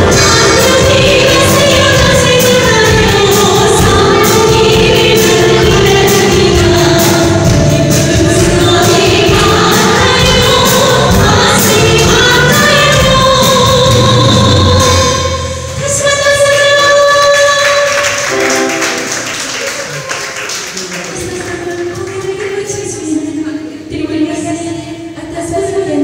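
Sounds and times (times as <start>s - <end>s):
drum beat: 0.0s - 14.9s
women singing: 0.0s - 18.4s
keyboard: 0.0s - 23.8s.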